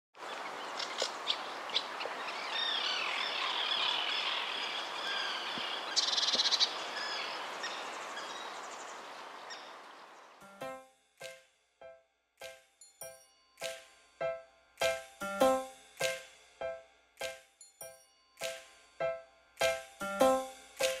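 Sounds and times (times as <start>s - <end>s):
birds chirping and calling: 0.3s - 10.1s.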